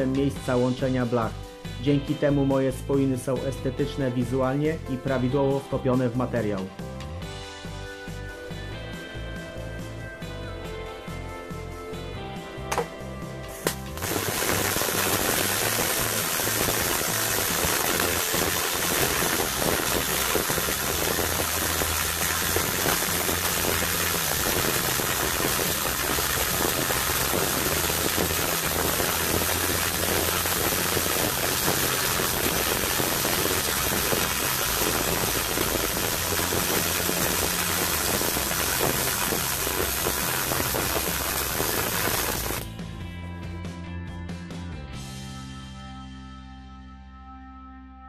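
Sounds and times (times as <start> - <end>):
welding arc hissing: 13.5 - 42.7.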